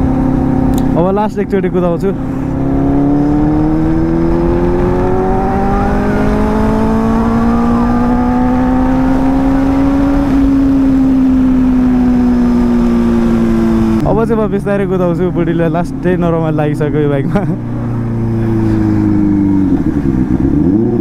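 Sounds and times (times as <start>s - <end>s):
motorcycle engine accelerating: 0.0s - 21.0s
wind rushing: 2.2s - 14.1s.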